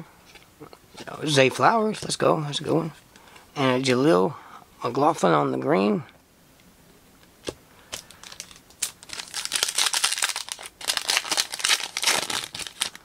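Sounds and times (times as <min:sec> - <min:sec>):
foil wrapper crinkling and tearing: 0:07.9 - 0:13.0.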